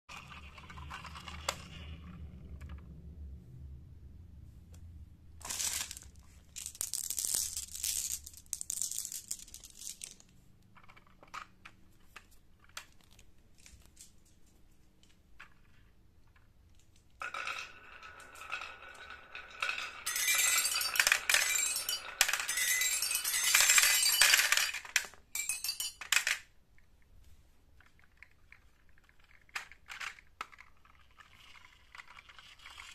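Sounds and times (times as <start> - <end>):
marbles rolling down wooden run: 0.1 - 3.0, 5.4 - 11.8, 15.1 - 26.5, 27.8 - 32.9
toys being handled: 5.4 - 32.9.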